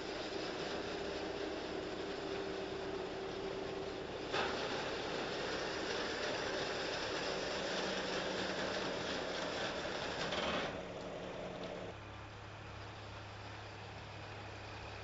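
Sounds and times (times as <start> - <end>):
tyres rolling on steel ramp: 0.0 - 11.9
low engine hum: 0.0 - 15.0.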